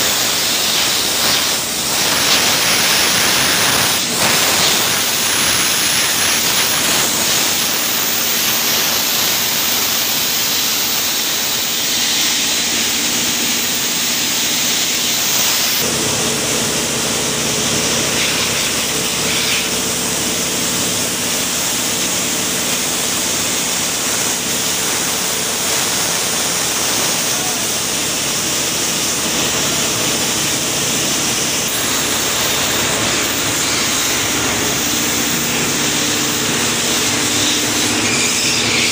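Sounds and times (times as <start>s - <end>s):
drilling rig engine running: 0.0s - 38.9s
loud rushing hiss: 0.0s - 38.9s.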